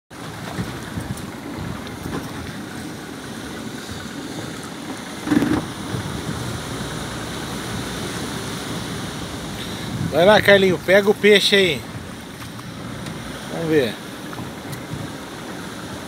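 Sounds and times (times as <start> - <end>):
water slapping boat: 0.1 - 16.0
waves breaking on rocks: 0.1 - 16.0
wind on microphone: 0.2 - 11.0, 14.3 - 16.0.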